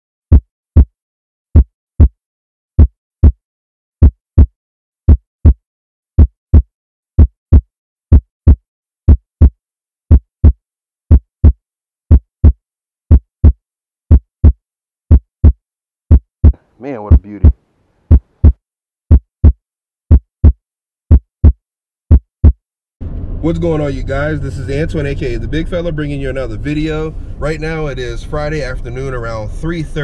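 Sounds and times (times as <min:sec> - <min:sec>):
heartbeat thumps: 0:00.3 - 0:00.9, 0:01.6 - 0:02.2, 0:02.8 - 0:03.4, 0:04.0 - 0:04.5, 0:05.1 - 0:05.6, 0:06.2 - 0:22.6.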